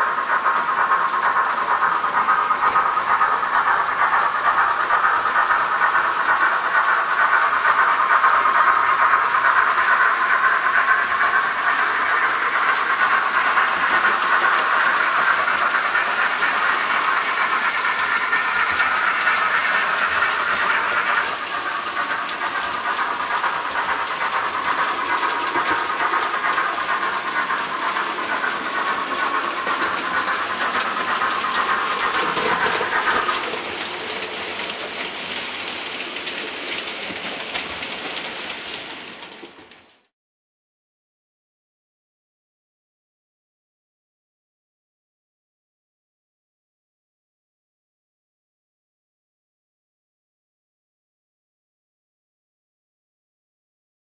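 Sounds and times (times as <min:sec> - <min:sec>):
model train running on track: 0:00.0 - 0:40.1.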